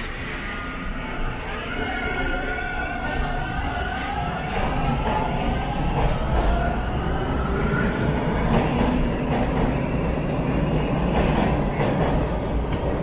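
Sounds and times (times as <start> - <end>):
steel train wheels rolling on track: 2.2 - 13.0.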